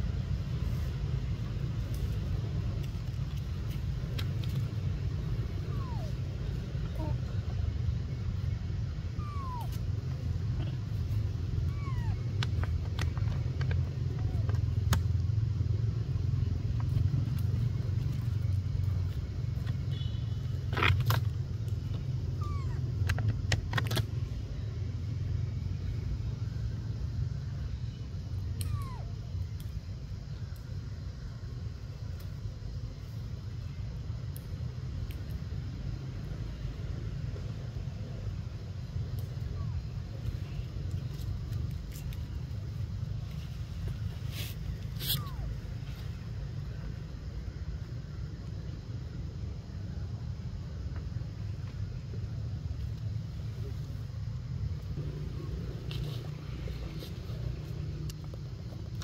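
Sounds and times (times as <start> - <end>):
dry leaves crackling: 0.0 - 8.8, 40.0 - 46.4, 55.0 - 59.0
steady low rumble: 0.0 - 59.0.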